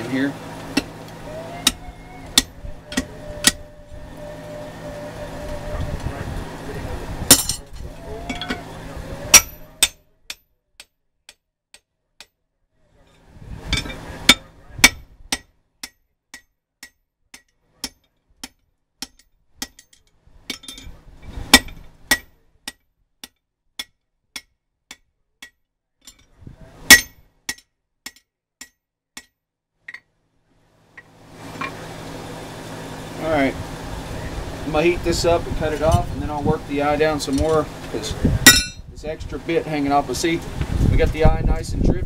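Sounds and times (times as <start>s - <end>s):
hammer clinking on metal: 38.5s - 38.8s.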